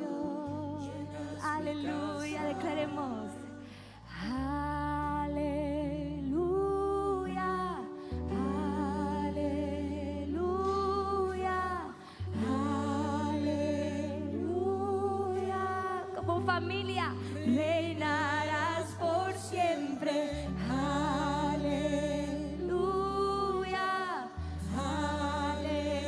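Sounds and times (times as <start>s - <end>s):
worship singing: 0.0s - 26.0s.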